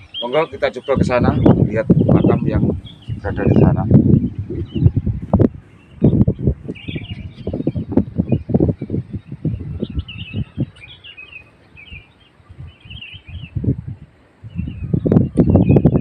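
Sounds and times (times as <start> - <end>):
small birds chirping: 0.0 - 16.0
low thuds and rumbles: 1.3 - 10.6.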